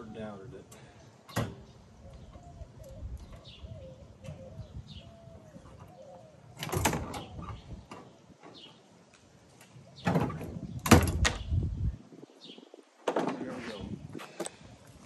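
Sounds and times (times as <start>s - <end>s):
small birds chirping: 0.0s - 14.6s
dove cooing: 2.0s - 7.7s.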